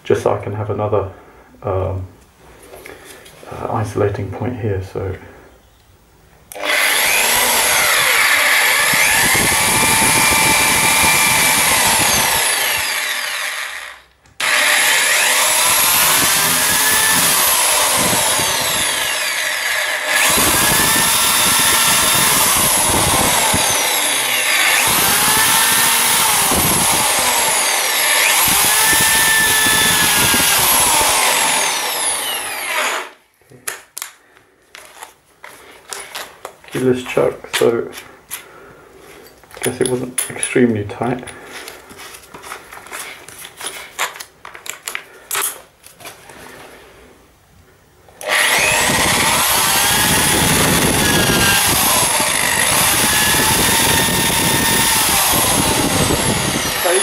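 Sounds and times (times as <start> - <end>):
drill boring into wall: 6.5 - 33.2, 48.2 - 57.0.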